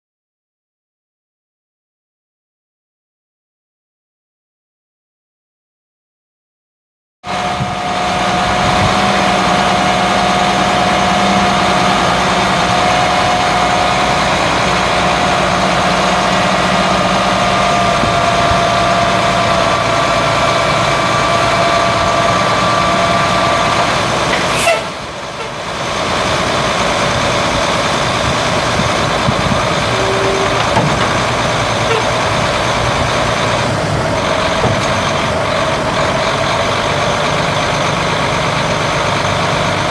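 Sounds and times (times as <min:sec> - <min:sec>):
hydraulic hoist whine: 0:07.3 - 0:36.5
diesel truck engine running: 0:07.3 - 0:39.9.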